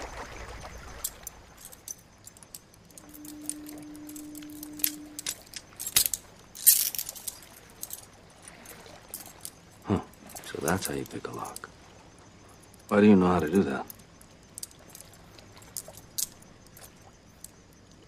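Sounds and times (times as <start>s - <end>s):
low steady hum: 0.1s - 18.0s
handcuff chain clinking: 1.0s - 11.7s, 12.6s - 18.0s
lock picking clicks: 1.2s - 8.0s.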